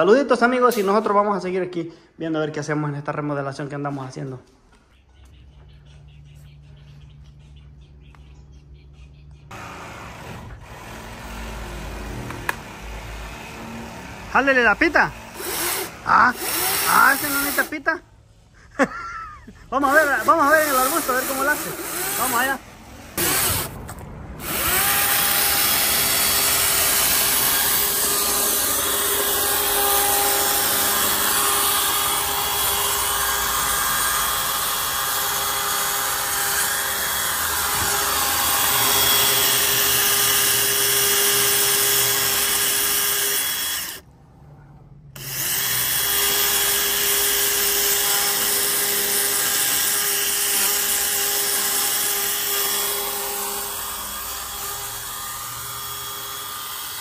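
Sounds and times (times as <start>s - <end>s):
chainsaw cutting wood: 20.0s - 22.5s, 23.2s - 23.8s, 24.4s - 44.0s.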